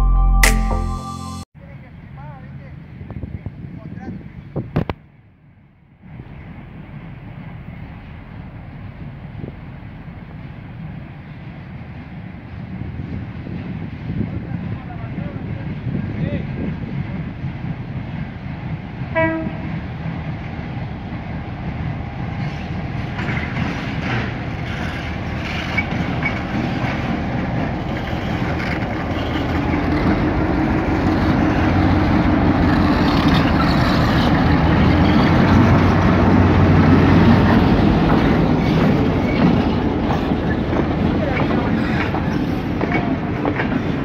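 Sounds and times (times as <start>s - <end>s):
diesel locomotive engine running: 6.1s - 44.0s
train horn toot: 19.1s - 19.8s
wheels clicking and squeaking: 23.2s - 27.1s, 32.7s - 35.6s.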